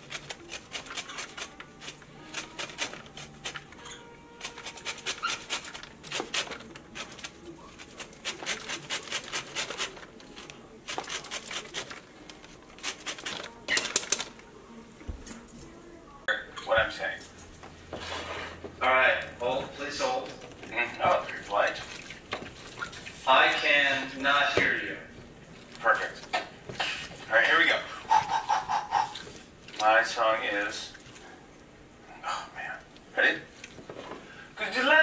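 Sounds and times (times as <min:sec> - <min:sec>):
lemon scraping on metal grater: 0:00.0 - 0:10.0.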